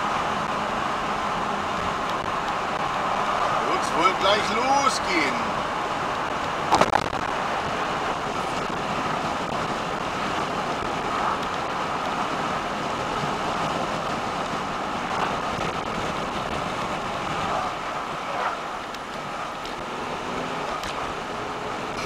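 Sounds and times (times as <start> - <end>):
car road and wind noise: 0.0 - 22.0.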